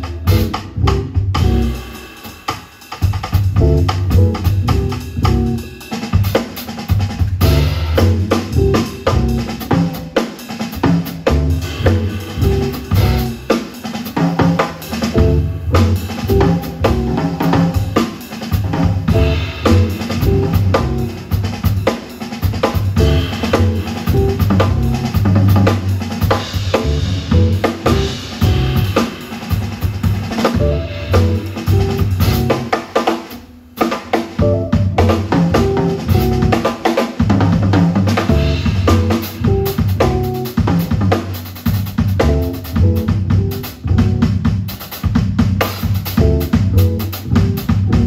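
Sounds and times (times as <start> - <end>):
upright double bass: 0.0 - 1.8, 3.5 - 5.7, 7.4 - 10.0, 10.9 - 13.4, 15.0 - 17.7, 18.6 - 21.2, 22.9 - 29.0, 30.6 - 32.7, 34.4 - 36.6, 37.3 - 44.8, 46.0 - 48.0
drum kit: 0.0 - 48.0
guitar chords and lines: 15.1 - 17.1, 30.6 - 32.6, 34.4 - 36.4.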